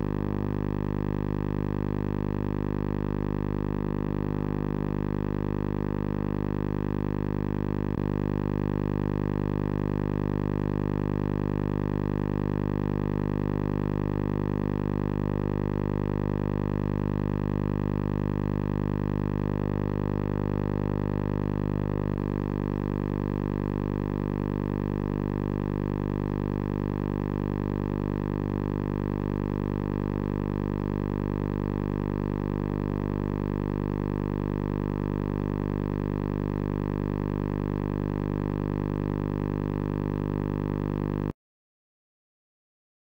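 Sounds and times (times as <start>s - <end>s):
steady electrical hum: 13.2s - 25.9s.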